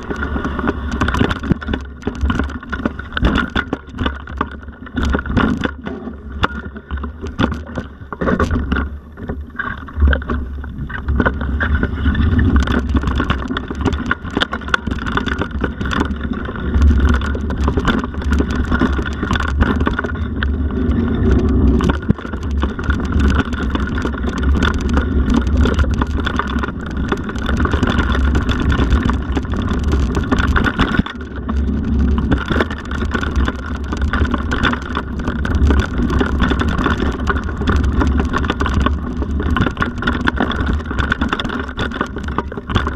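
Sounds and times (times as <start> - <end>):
bike rattling and knocking: 0.0 - 42.9
tyres on dirt and rock: 0.0 - 42.9.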